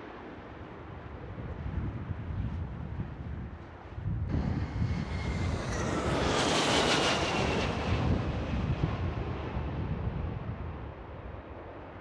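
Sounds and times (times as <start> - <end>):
wind buffeting microphone: 0.8 - 11.4
jet engine whine: 4.2 - 11.9
jet airliner passing overhead: 4.2 - 12.0.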